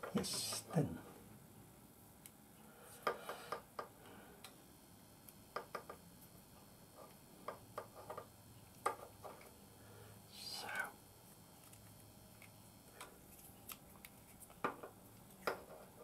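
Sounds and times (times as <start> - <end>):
electrical tape crackling and clicking: 11.2 - 16.0.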